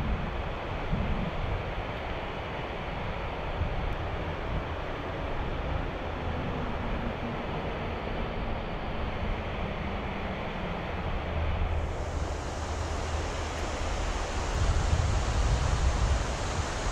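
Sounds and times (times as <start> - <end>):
wind on microphone: 0.0 - 2.1, 2.9 - 16.9
fast-flowing river rushing: 4.1 - 16.9.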